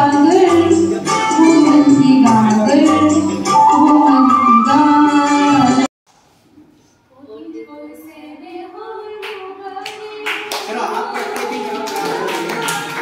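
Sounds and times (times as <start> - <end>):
audience clapping: 9.2 - 13.0.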